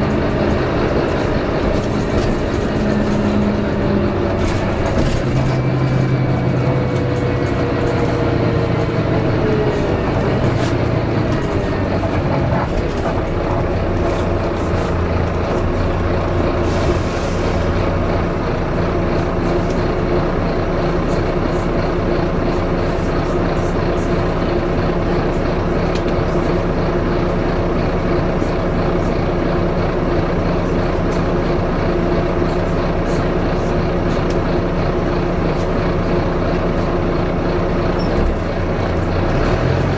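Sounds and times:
bus engine idling: 0.0 - 39.9
bus engine whine slowing: 0.0 - 39.9.

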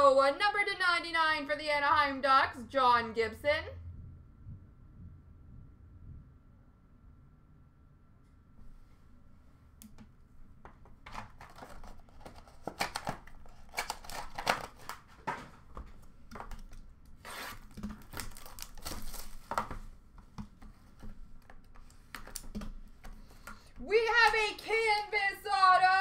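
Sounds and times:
cards shuffled: 10.6 - 23.6
packaging torn and crinkled: 11.0 - 19.8.

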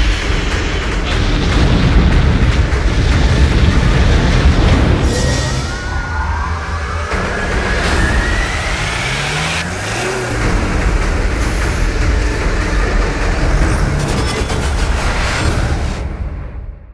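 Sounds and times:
whooshing sound effects: 0.0 - 16.4
vehicle engine revving: 7.0 - 15.9.

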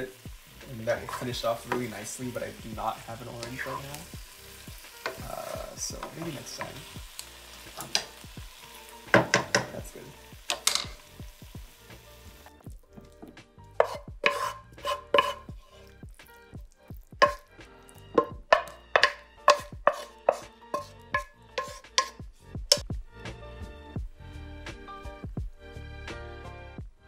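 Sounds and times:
faint sizzle: 0.0 - 12.8
spatula knocking and scraping a wok: 4.8 - 7.0, 9.0 - 11.2, 12.9 - 16.2, 17.2 - 22.9.

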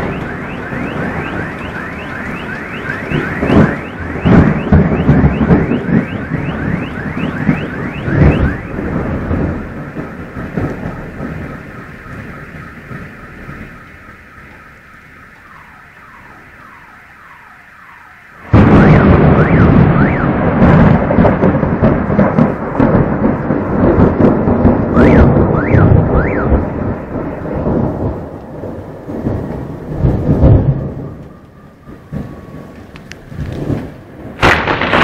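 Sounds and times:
alarm wailing: 0.0 - 21.1, 24.9 - 28.0
rolling thunder rumble: 0.0 - 35.0
thunder crack: 0.0 - 35.0.

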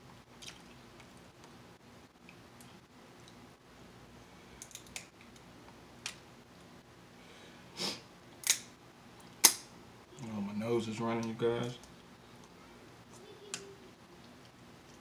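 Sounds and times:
person sniffing: 7.7 - 8.1.

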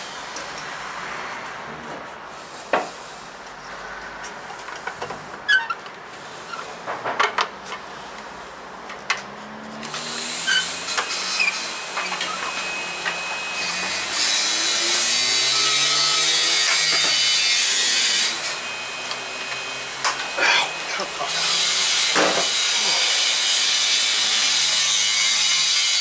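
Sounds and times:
power tool running: 9.4 - 26.0.

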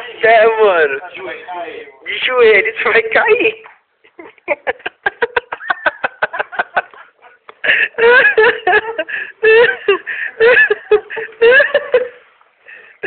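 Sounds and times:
people laughing: 4.0 - 12.3.

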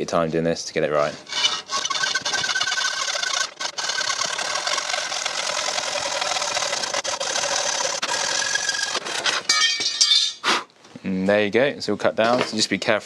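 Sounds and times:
hacksaw cutting metal: 1.1 - 10.4.

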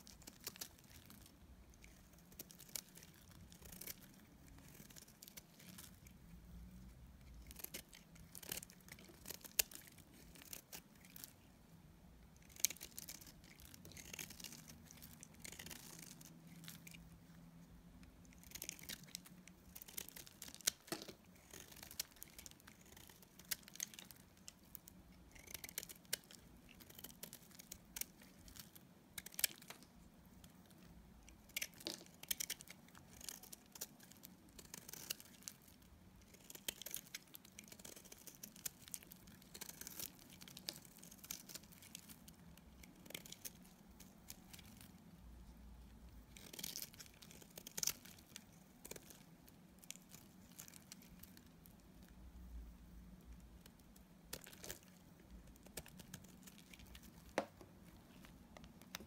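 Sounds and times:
knife blade shaving soap: 0.2 - 6.1, 31.5 - 42.2.

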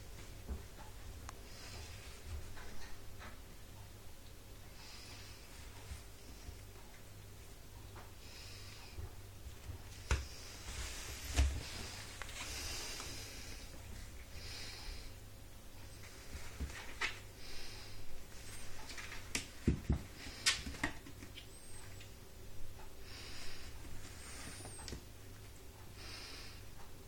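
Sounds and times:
soft breaths or sniffs: 10.0 - 15.2, 23.0 - 24.9.

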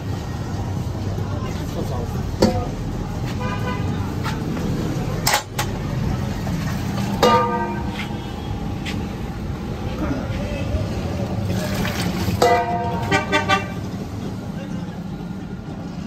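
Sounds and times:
street traffic rumble: 0.0 - 16.0
car horns tooting: 3.3 - 4.1, 12.4 - 13.9.

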